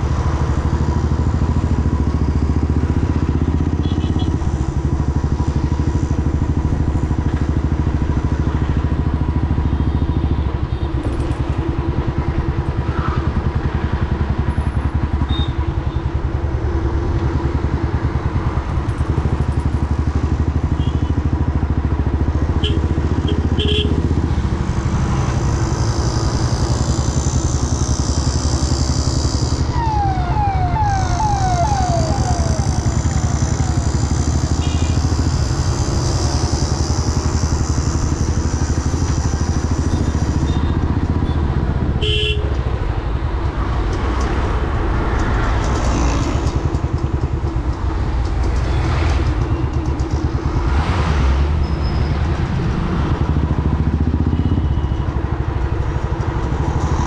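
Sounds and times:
motorcycle engine running: 17.5s - 41.9s
siren wailing: 29.4s - 35.1s.

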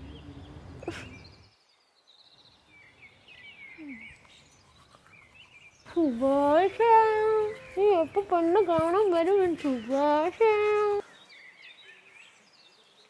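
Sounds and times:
faint high bird chirps: 0.0s - 8.9s.

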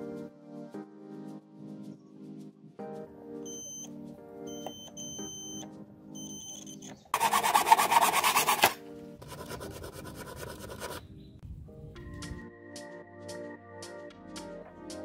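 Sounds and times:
multimeter continuity beeps: 3.5s - 3.9s, 4.5s - 7.0s
hacksaw cutting plastic tube: 7.2s - 8.8s.

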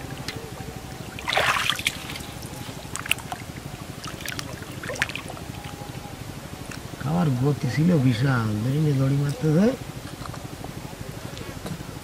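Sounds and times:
water splashing and trickling: 1.1s - 5.8s.

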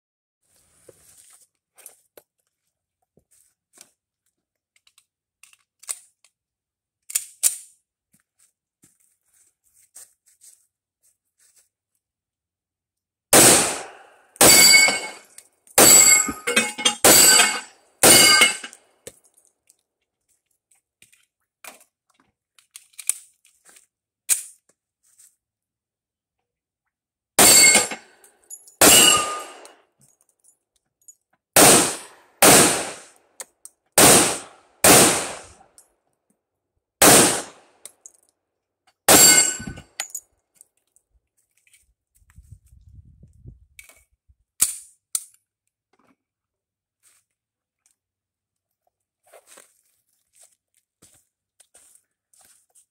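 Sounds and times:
pistol shots: 13.4s - 15.2s, 17.0s - 18.7s, 27.4s - 28.0s, 28.8s - 29.7s, 31.6s - 33.1s, 34.0s - 35.6s, 37.0s - 37.6s, 39.1s - 39.8s
steel targets ringing: 13.6s - 18.8s, 27.4s - 28.1s, 28.8s - 29.7s, 39.1s - 39.8s
handling clicks and knocks: 16.0s - 19.4s.

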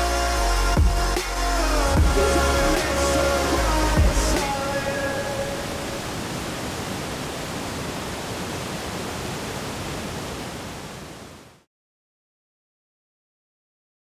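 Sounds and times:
mountain stream rushing: 1.9s - 11.6s.

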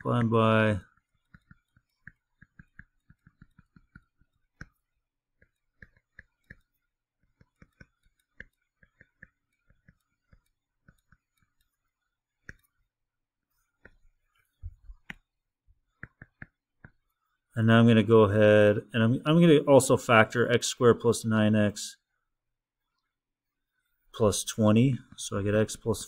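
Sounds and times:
stylus tapping on tablet screen: 0.2s - 12.9s, 13.6s - 17.2s.

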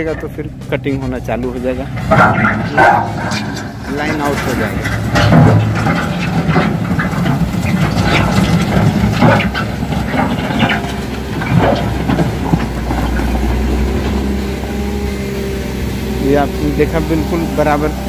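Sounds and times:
knocks and rattles: 0.0s - 15.3s
diesel loader engine running: 0.0s - 18.0s.

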